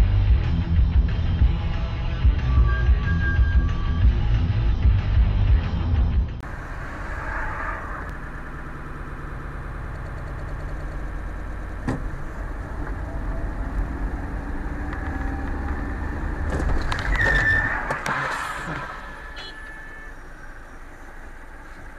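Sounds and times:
car engine and road noise: 0.0 - 21.9
brief high-pitched tone: 19.0 - 20.2.

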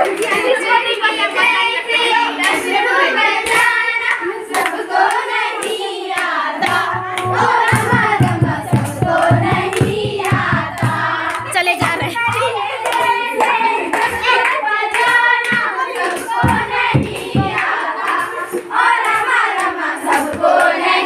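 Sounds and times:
girls singing together: 0.0 - 21.0
hands clapping in rhythm: 0.0 - 21.0
low repeated beat: 6.6 - 14.4, 15.0 - 20.8.

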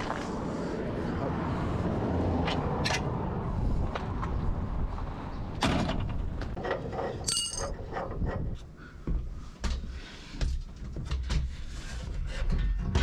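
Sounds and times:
knocks and clinks: 7.0 - 8.0
ringing clink: 7.3 - 7.7.

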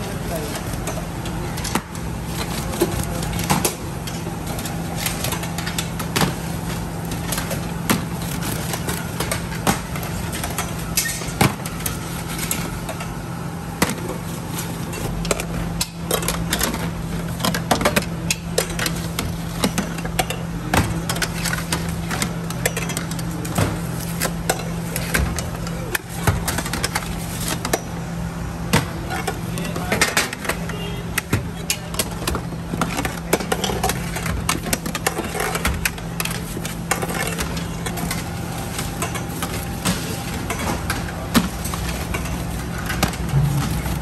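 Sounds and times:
low machine hum: 0.0 - 44.0
metal trays clanking and scraping: 28.6 - 44.0.

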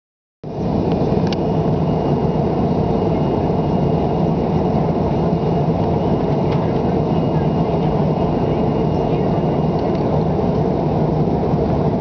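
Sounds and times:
faint high whine: 0.5 - 10.1
jet engine cabin roar: 0.5 - 12.0.

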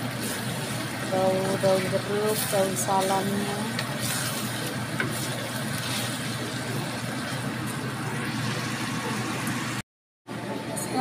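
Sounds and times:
rushing kitchen noise: 0.0 - 11.0
spatula scraping metal wok: 2.3 - 6.2.

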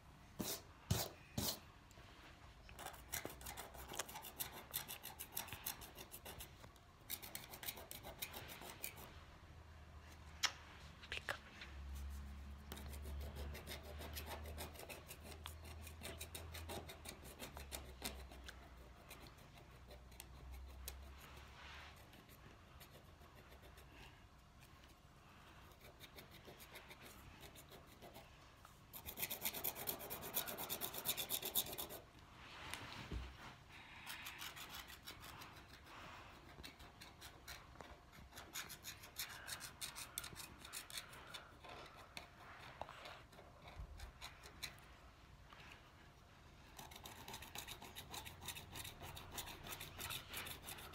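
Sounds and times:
stylus scratching paper: 2.8 - 9.1, 12.0 - 24.1, 25.6 - 32.1, 34.0 - 44.9, 46.7 - 50.9.

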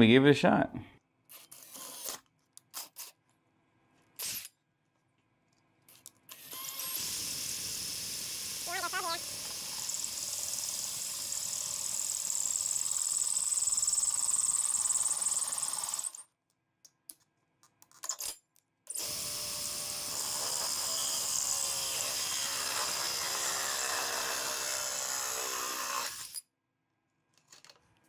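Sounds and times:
cordless drill boring plastic: 1.3 - 3.1, 6.3 - 16.2, 18.9 - 26.4.

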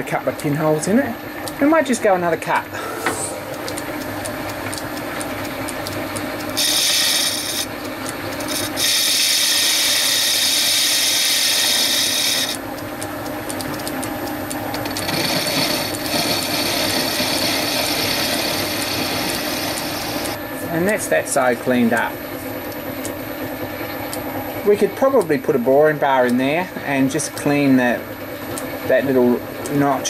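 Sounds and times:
lathe motor hum: 2.6 - 28.4
lathe tool hissing cut: 2.7 - 4.1, 6.5 - 7.7, 8.4 - 12.6, 14.9 - 20.8.

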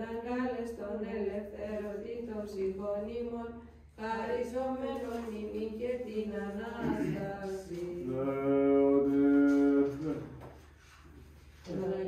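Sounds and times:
person chanting: 6.8 - 10.4.

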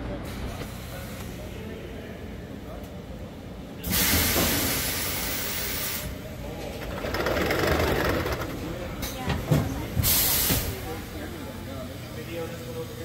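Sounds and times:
loud hiss of air: 3.8 - 6.2, 10.0 - 11.0
rough mechanical machinery noise: 6.2 - 9.2.

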